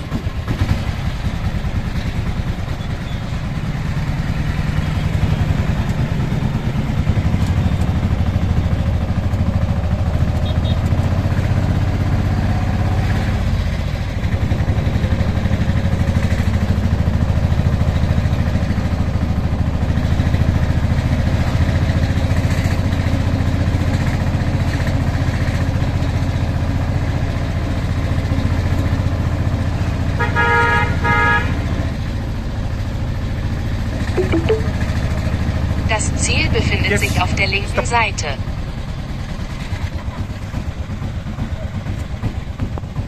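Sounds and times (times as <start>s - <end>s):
vehicle horn: 10.4s - 10.9s, 30.2s - 31.6s.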